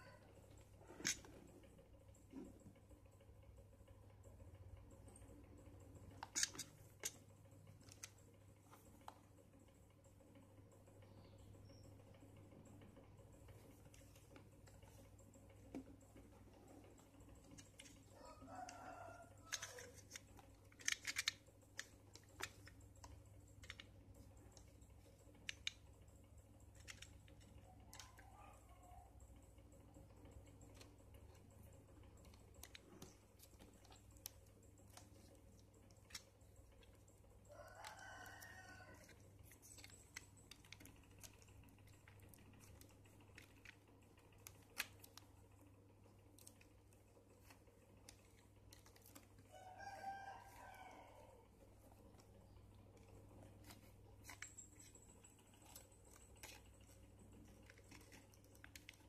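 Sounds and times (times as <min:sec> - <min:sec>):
rooster crowing: 0:18.2 - 0:19.9, 0:37.5 - 0:39.1, 0:49.5 - 0:51.4.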